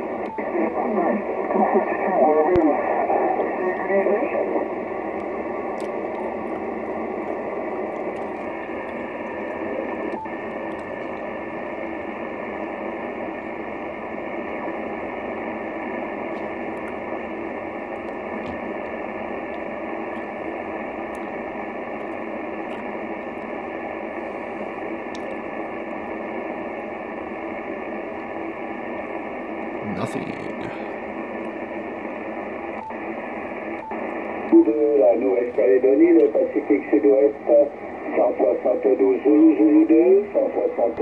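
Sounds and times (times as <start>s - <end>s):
radio receiver hiss and static: 0.0s - 41.0s.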